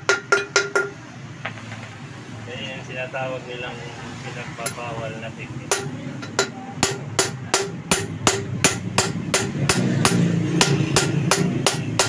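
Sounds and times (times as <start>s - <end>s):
hammer striking metal: 0.0s - 1.9s, 5.7s - 12.0s.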